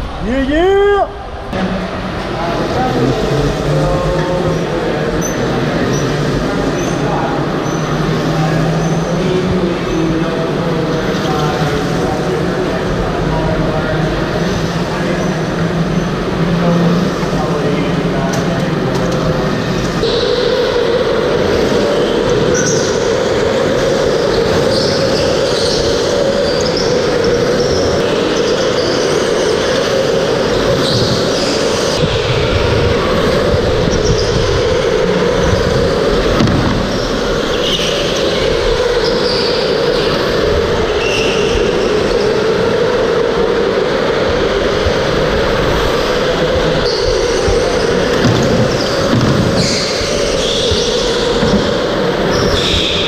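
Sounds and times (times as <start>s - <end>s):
tyre squeals: 46.8s - 53.0s.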